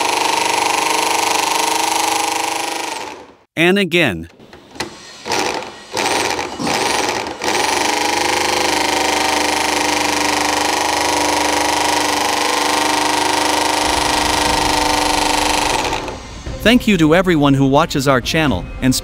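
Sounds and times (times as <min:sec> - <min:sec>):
electric drill whining: 0:00.0 - 0:03.5, 0:04.7 - 0:16.4.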